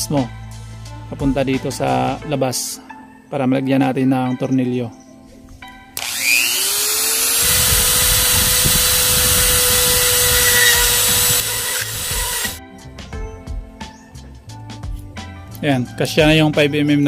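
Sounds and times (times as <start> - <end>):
rotary tool whining: 6.0 - 12.6.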